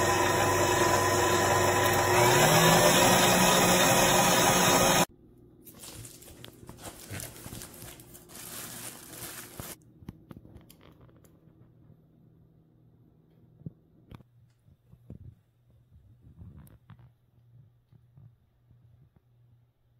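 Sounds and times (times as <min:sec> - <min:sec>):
stand mixer whisking: 0:00.0 - 0:05.1.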